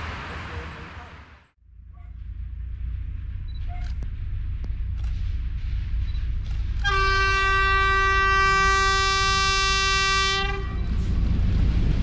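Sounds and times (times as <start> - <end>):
locomotive horn blast: 6.8 - 10.9.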